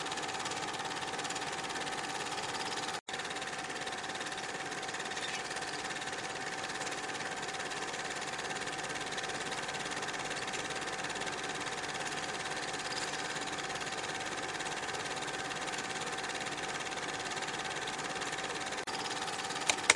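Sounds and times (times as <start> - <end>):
film projector clatter: 0.0 - 19.9
projector whine: 18.2 - 19.9.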